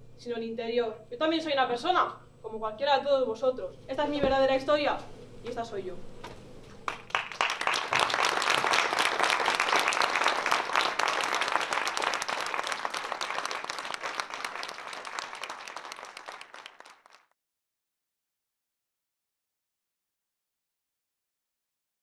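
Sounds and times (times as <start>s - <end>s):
audience applauding: 6.8s - 17.3s.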